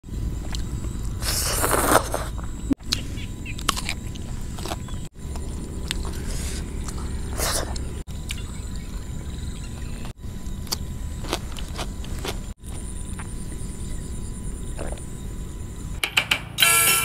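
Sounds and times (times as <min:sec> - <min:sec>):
steady low rumble: 0:00.0 - 0:16.0
crunchy bites and chewing: 0:00.2 - 0:09.0, 0:09.6 - 0:13.7.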